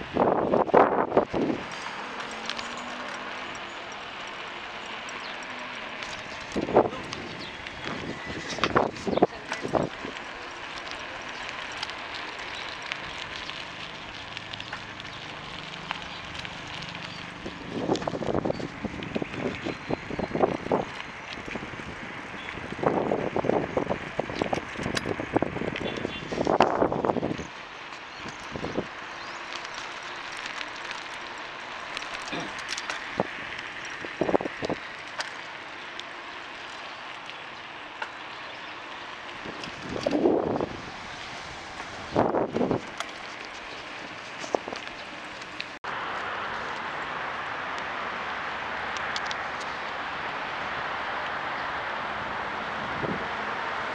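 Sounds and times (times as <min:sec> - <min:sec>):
bicycle road noise: 0:00.0 - 0:53.9
small clicks and rattles: 0:01.2 - 0:40.6, 0:41.7 - 0:45.8, 0:48.9 - 0:50.0
wind on microphone: 0:06.3 - 0:10.2, 0:17.4 - 0:27.5, 0:33.1 - 0:34.8, 0:39.4 - 0:43.0, 0:52.2 - 0:53.4.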